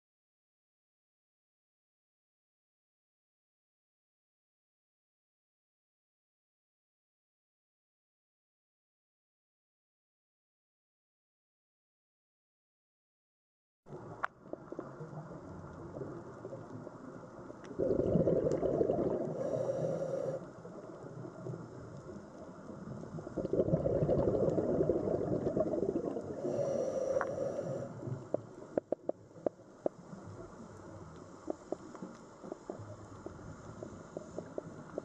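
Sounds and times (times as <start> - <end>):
low underwater rumble: 13.9 - 35.0
regulator bubbly exhalations: 17.7 - 20.9, 23.2 - 28.4.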